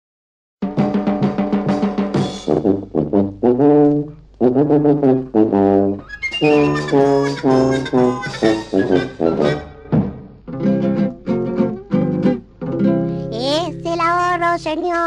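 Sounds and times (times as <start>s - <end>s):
brass-led instrumental music: 0.6s - 12.3s.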